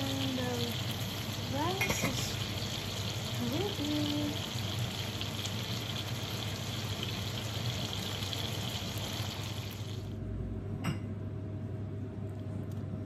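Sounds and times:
food sizzling in a frying pan: 0:00.0 - 0:10.2.

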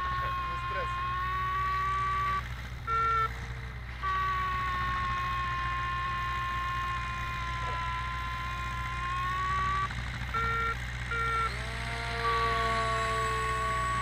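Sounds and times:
wavering electronic tones: 0:00.0 - 0:14.0.

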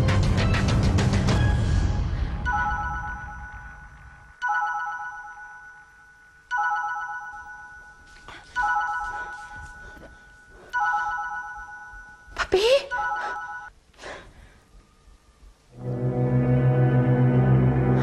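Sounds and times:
bell-like phone ringtone: 0:02.4 - 0:13.8.

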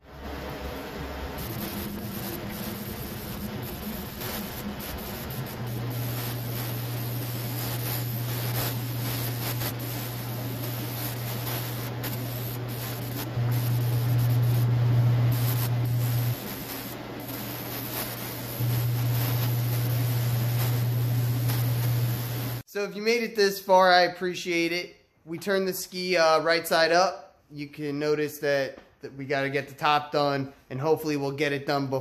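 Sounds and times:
low steady hum: 0:00.1 - 0:22.6
paint spray gun hissing: 0:01.2 - 0:22.6.

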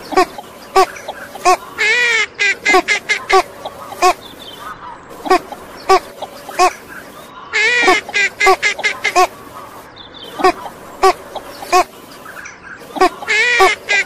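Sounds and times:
ducks quacking: 0:00.0 - 0:14.0
duck wavering call: 0:00.1 - 0:04.2, 0:05.2 - 0:06.8, 0:07.6 - 0:09.4, 0:10.3 - 0:11.9, 0:13.0 - 0:14.0.

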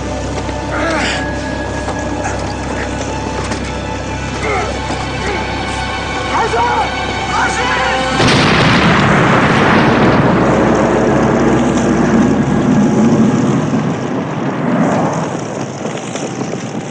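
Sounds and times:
rushing noise of car burning: 0:06.3 - 0:16.9
car exploding: 0:08.2 - 0:16.9.

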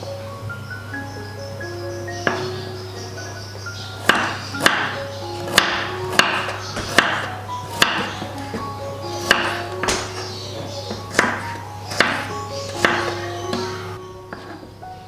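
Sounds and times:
light melodic background music: 0:00.0 - 0:15.0
knife chopping on wooden board: 0:04.0 - 0:14.6.

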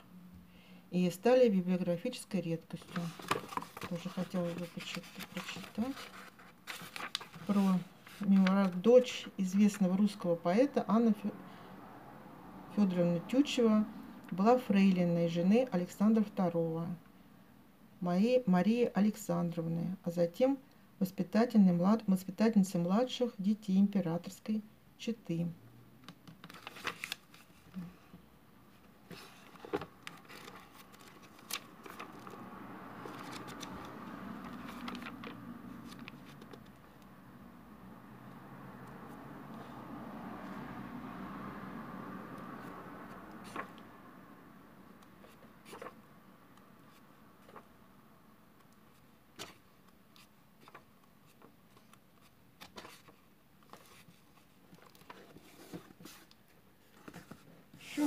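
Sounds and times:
pages riffling: 0:02.8 - 0:08.8, 0:26.4 - 0:27.6, 0:29.1 - 0:32.4, 0:33.0 - 0:36.8
book pages turning: 0:02.8 - 0:08.9, 0:26.2 - 0:27.9, 0:28.8 - 0:37.0, 0:42.4 - 0:43.9, 0:45.0 - 0:46.0, 0:46.6 - 0:47.7, 0:48.6 - 0:58.0.

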